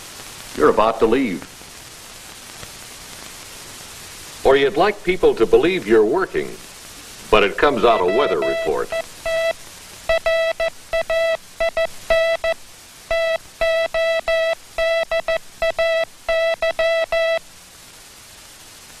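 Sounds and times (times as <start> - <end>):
faint hiss: 0.0 - 19.0
morse code tone: 7.6 - 17.4.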